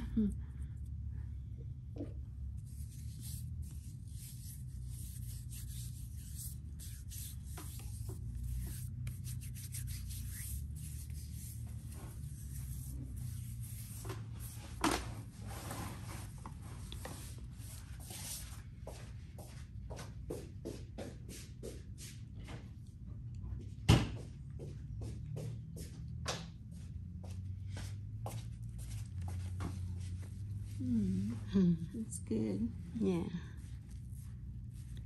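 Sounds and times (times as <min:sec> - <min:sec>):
steady low hum: 0:00.0 - 0:35.0
rubbing and scraping on nails: 0:02.5 - 0:14.8.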